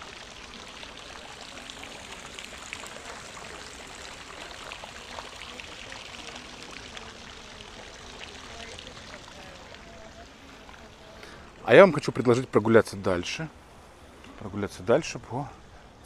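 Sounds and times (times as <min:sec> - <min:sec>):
running water splashing: 0:00.0 - 0:15.5.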